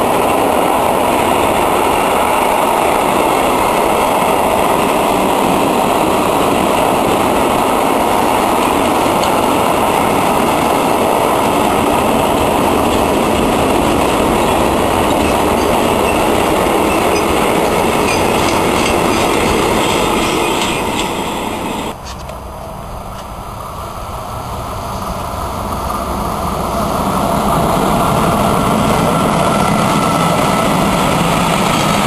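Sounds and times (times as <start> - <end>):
freight train rolling past: 0.0 - 32.0.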